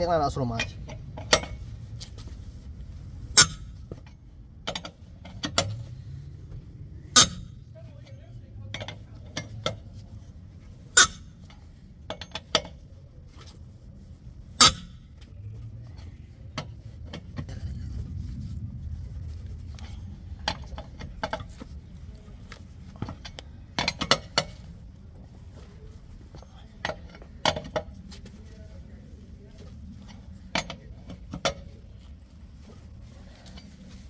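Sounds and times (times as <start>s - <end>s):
low rumble: 0.0s - 12.1s, 12.9s - 23.8s.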